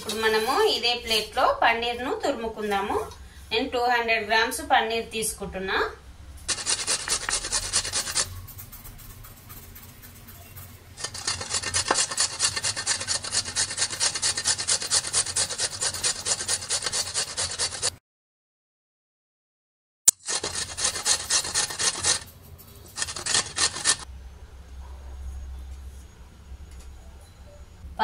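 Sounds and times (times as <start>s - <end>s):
cheese grated on metal grater: 6.5s - 17.9s, 20.1s - 24.1s.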